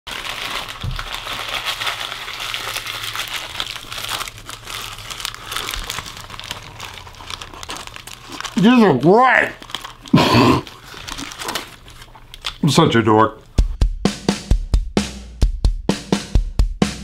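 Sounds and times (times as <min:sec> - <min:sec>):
paper bag crinkling and rustling: 0:00.1 - 0:12.5.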